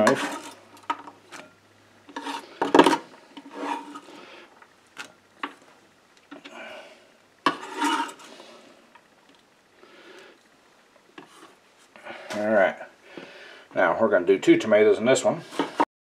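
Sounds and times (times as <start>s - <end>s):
knife scraping cutting board: 0.0s - 0.6s, 2.1s - 4.2s, 7.5s - 8.3s.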